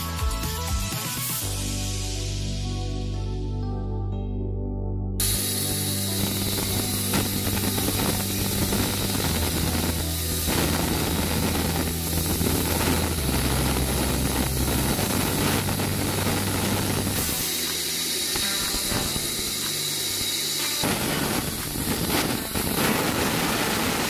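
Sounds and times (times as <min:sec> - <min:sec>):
band saw cutting wood: 0:05.2 - 0:24.0.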